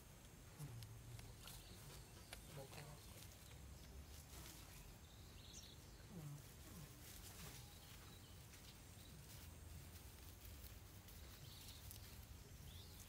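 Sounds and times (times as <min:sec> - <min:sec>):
soft ticks and rustles: 0:00.0 - 0:13.0
faint chirp: 0:00.6 - 0:09.5.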